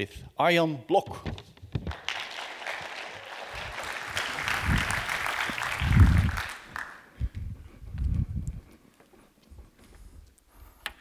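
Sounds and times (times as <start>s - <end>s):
audience applauding: 1.8s - 7.2s.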